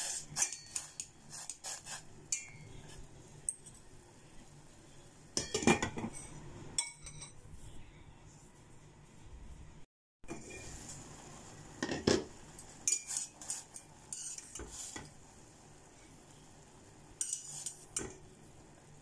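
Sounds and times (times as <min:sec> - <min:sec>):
metal utensil scraping a pot: 0:00.0 - 0:03.8, 0:12.8 - 0:15.1, 0:17.2 - 0:18.2.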